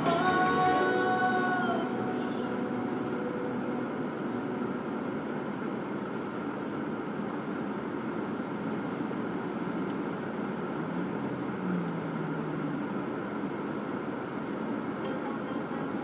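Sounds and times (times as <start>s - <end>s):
music: 0.0s - 3.5s
car interior road noise: 0.0s - 16.0s.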